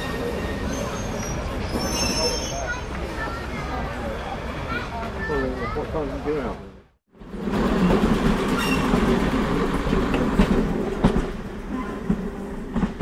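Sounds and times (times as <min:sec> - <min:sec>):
diesel train engine drone: 0:07.1 - 0:13.0.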